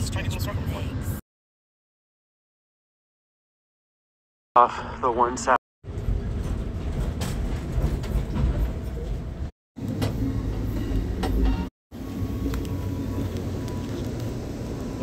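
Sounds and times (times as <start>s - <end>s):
train rumble from inside: 0.0s - 1.2s, 5.8s - 15.0s.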